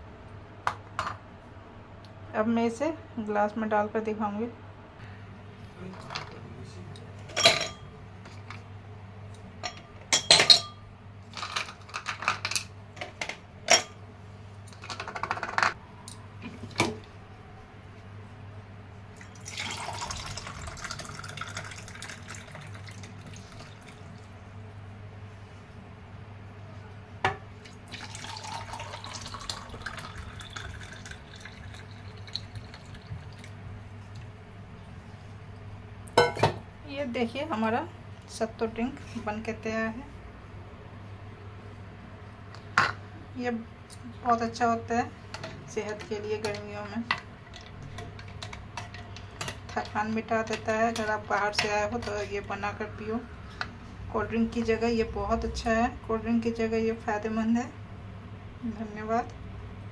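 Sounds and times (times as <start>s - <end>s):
drink poured over ice: 19.2s - 24.2s, 27.7s - 33.5s.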